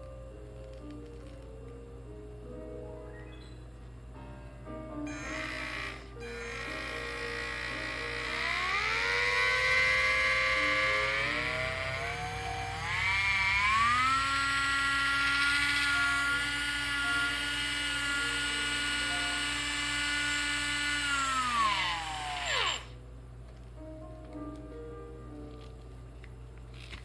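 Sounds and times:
electric fishing reel motor whine: 5.1 - 23.0.

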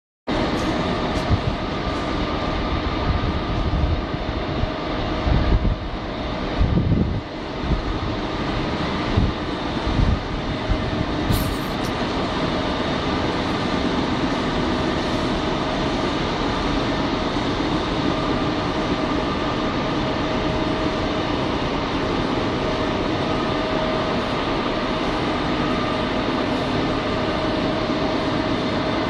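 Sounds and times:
pellet mill humming and whining: 0.3 - 29.0
short high hiss: 11.3 - 11.9.

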